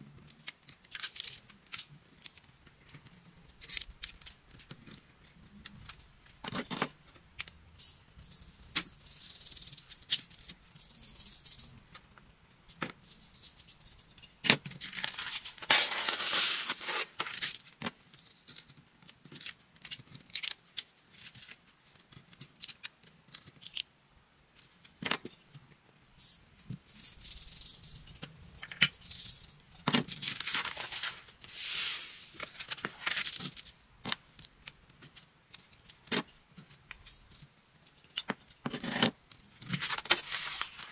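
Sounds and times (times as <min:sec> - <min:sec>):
sand pouring and rustling: 0:15.7 - 0:17.2, 0:31.4 - 0:32.4
tweezers clicking and scraping paper: 0:17.3 - 0:23.9.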